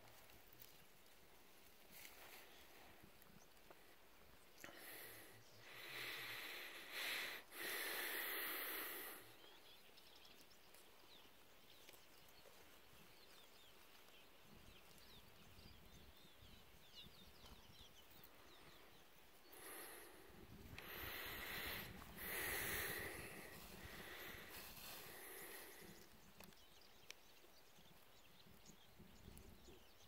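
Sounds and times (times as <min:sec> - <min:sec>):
breath puffs: 0:04.6 - 0:09.5, 0:19.4 - 0:26.2.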